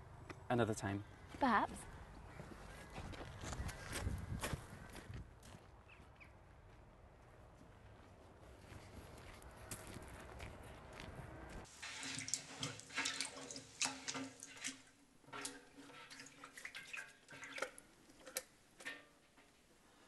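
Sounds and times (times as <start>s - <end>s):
hands splashing water: 11.7s - 18.5s.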